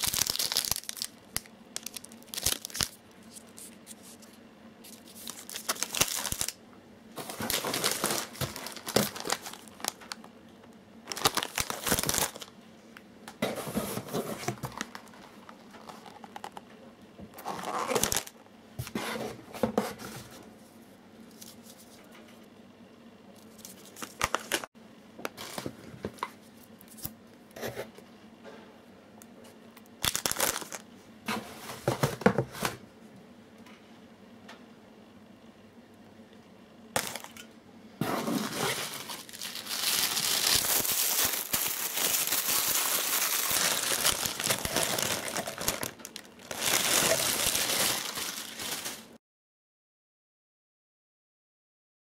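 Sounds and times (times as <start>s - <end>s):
plastic wrappers crinkling: 0.0s - 6.6s, 7.2s - 10.3s, 11.0s - 12.5s, 13.8s - 16.6s, 17.4s - 18.4s, 23.4s - 24.7s, 30.0s - 30.8s, 37.0s - 37.4s, 38.2s - 49.2s
cardboard boxes rustling: 7.2s - 9.9s, 13.4s - 15.2s.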